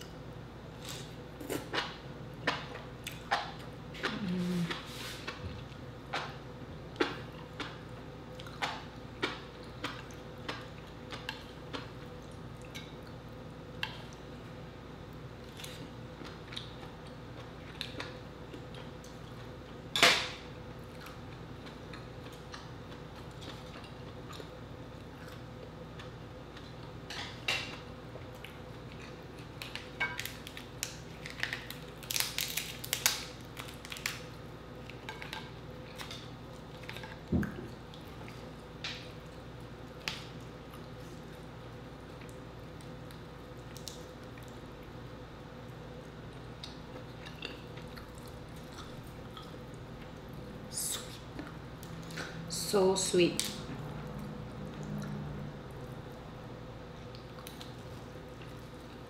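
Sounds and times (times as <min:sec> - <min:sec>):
chewing: 0:20.8 - 0:27.0, 0:45.7 - 0:50.4
crab shell snapping and cracking: 0:29.5 - 0:34.3.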